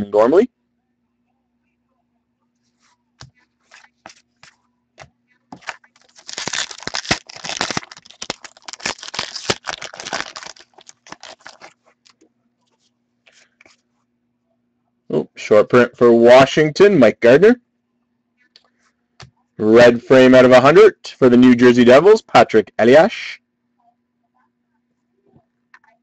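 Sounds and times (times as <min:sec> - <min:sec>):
wrapper tearing and crinkling: 0:05.6 - 0:11.8.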